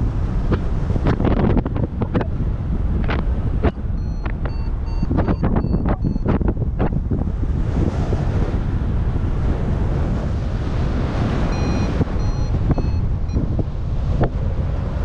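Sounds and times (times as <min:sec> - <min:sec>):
wind buffeting microphone: 0:00.0 - 0:15.0
high variometer beeps: 0:03.6 - 0:06.5, 0:11.5 - 0:13.5.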